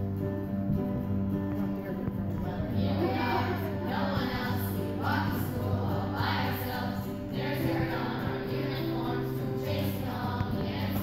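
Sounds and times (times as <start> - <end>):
children's choir singing: 2.4 - 11.0.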